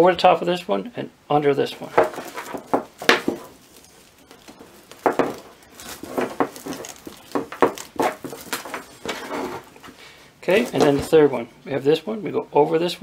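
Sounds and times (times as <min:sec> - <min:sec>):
rope strands rustling and scraping: 0:01.7 - 0:11.3
small knocks: 0:01.9 - 0:09.9.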